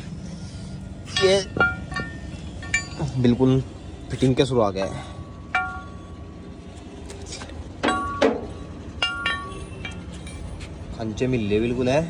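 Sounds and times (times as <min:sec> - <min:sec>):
steady low hum: 0:00.0 - 0:12.0
metal clinks and clanks: 0:01.0 - 0:03.5, 0:05.2 - 0:06.2, 0:07.8 - 0:11.0.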